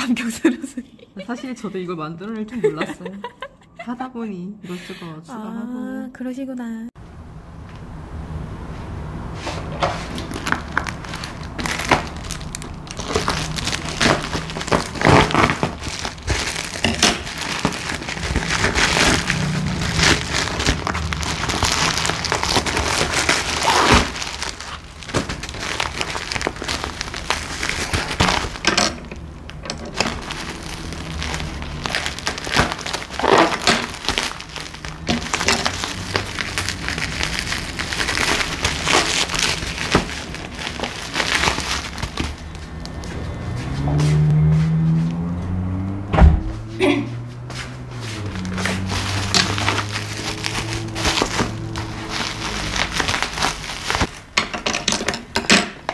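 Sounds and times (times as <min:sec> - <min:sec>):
plastic packaging crinkling: 0:09.9 - 0:43.2, 0:47.9 - 0:55.2
scissors snipping bubble wrap: 0:10.1 - 0:43.0, 0:48.2 - 0:54.2.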